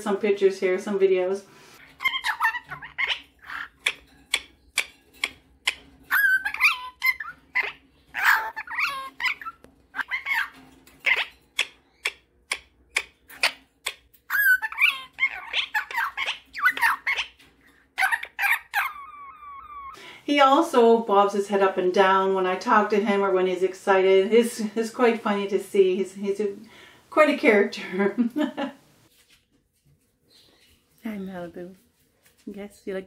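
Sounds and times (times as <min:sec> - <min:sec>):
parrot chirping and warbling: 0:01.8 - 0:20.0.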